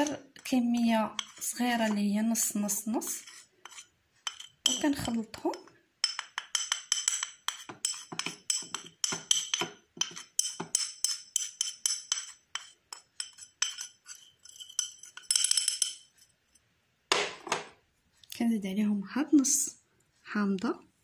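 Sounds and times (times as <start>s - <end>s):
teaspoon clinking in glass bowl: 1.1s - 2.1s, 3.7s - 16.2s.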